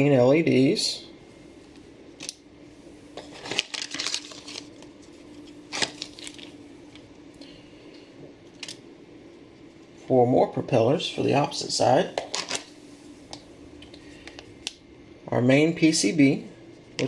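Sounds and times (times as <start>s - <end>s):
faint steady hum: 0.0s - 17.0s
plastic bags crinkling and tapping: 3.1s - 5.0s, 5.7s - 6.6s.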